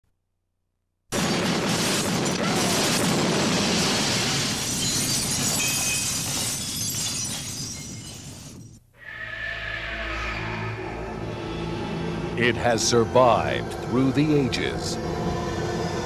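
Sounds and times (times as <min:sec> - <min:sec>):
glass shattering crash: 0:01.1 - 0:08.8.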